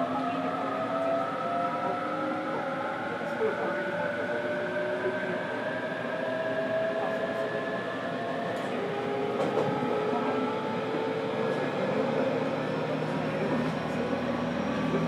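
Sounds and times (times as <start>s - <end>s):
wheels rumbling on rail: 3.3s - 15.0s.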